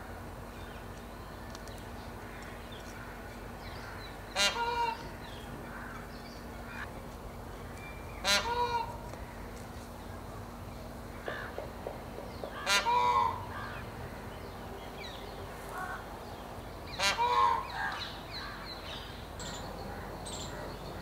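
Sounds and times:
peafowl alarm call: 3.8 - 5.1, 8.2 - 9.0, 12.2 - 13.9, 16.9 - 18.6.

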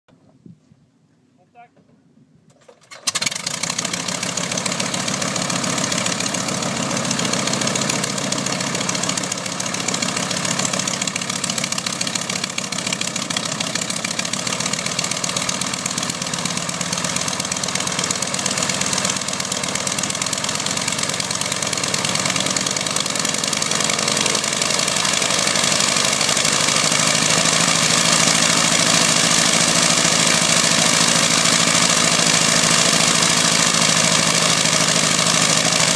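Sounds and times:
radial engine starting and idling: 2.5 - 35.9.

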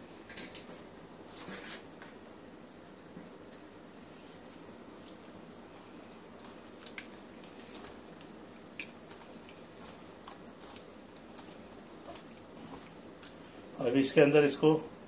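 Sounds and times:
wet squelching of meat in marinade: 4.9 - 13.5.

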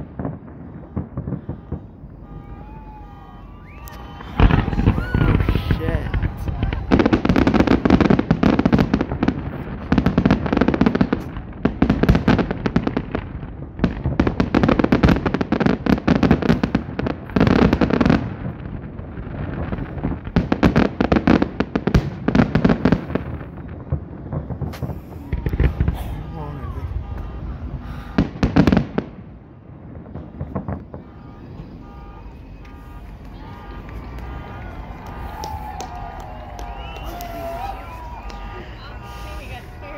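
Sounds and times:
fireworks crackling and popping: 0.0 - 39.9.

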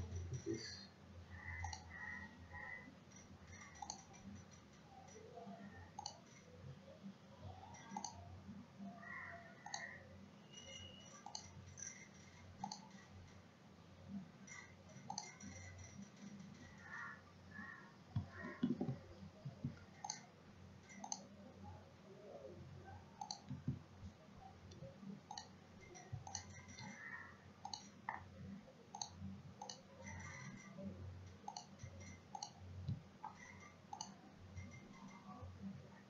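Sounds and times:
faint low hum: 0.0 - 36.0
mouse buttons clicking: 1.4 - 2.8, 3.6 - 4.4, 5.0 - 6.3, 7.6 - 8.2, 9.0 - 13.1, 14.5 - 16.1, 16.8 - 20.3, 20.9 - 21.4, 23.2 - 23.8, 24.7 - 28.3, 28.9 - 35.4.

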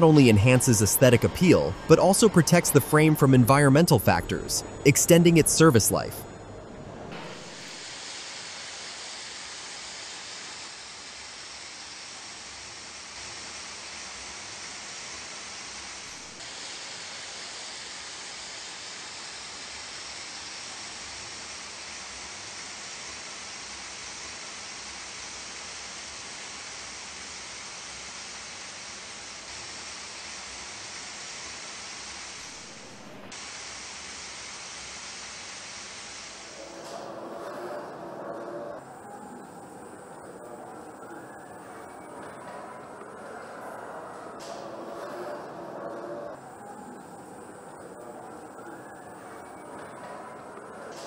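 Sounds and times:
paint sprayers hissing: 0.0 - 6.2, 7.1 - 23.8.

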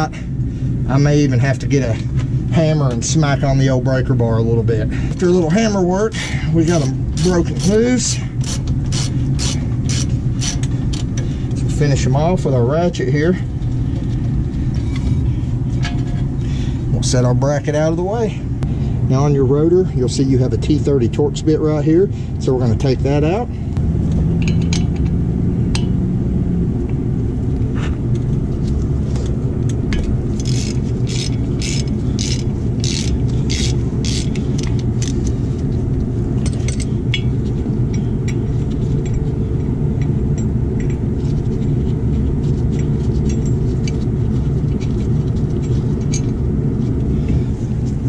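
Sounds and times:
low rumble: 0.0 - 48.0
ratchet clicking: 8.4 - 11.2, 30.4 - 35.3.

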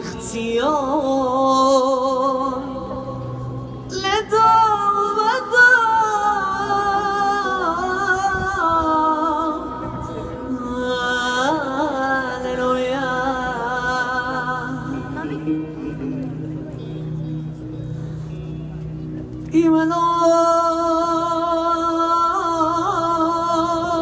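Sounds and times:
person singing with vibrato: 0.0 - 16.0, 19.6 - 24.0
music: 0.0 - 24.0.

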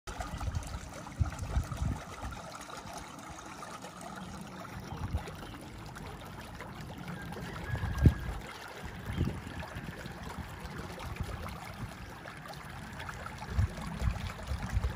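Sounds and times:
wind buffeting microphone: 0.2 - 2.5, 7.3 - 12.1, 13.4 - 14.9.

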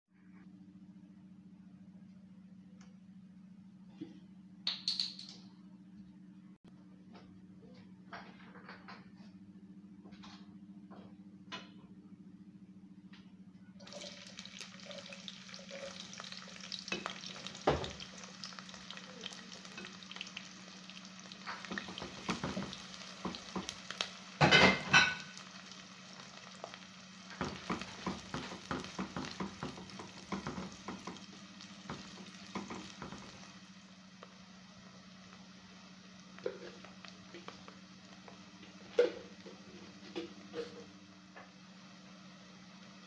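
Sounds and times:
onions sizzling in oil: 13.8 - 43.0.

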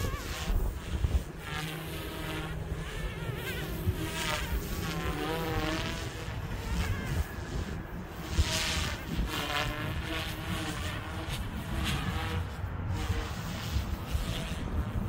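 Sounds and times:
rc helicopter motor whine: 0.0 - 15.0
wind on microphone: 0.0 - 15.0.

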